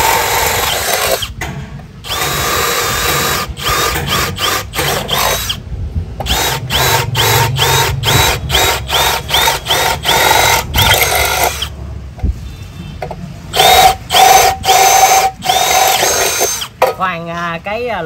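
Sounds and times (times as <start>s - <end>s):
cordless drill drilling into steel: 0.0s - 1.4s, 2.0s - 5.6s, 6.3s - 11.7s, 13.5s - 16.7s.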